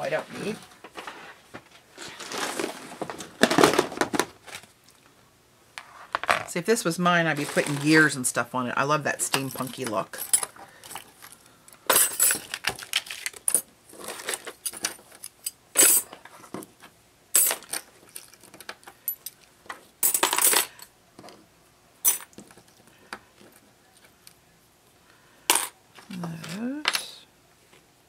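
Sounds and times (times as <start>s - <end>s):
small metal pieces clinking: 9.5s - 16.1s, 20.0s - 20.9s.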